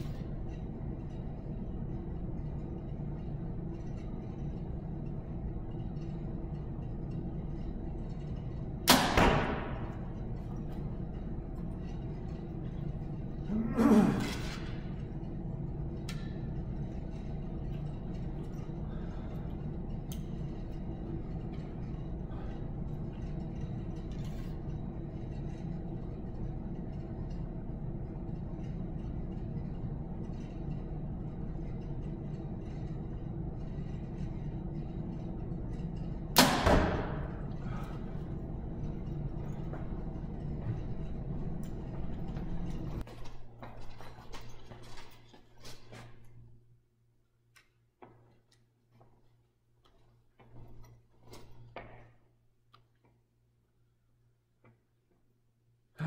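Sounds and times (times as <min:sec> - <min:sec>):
steady low hum: 0:00.0 - 0:56.0
arrow striking target: 0:08.9 - 0:09.9, 0:36.4 - 0:37.3.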